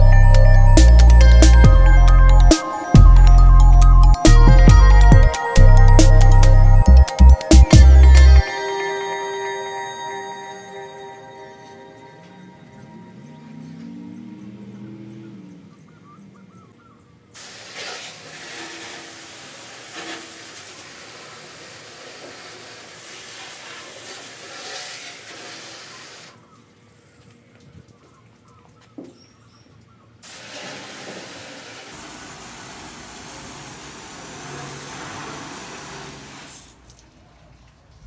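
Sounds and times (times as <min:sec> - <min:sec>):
water spraying from hose: 0:17.4 - 0:26.4, 0:30.2 - 0:37.2.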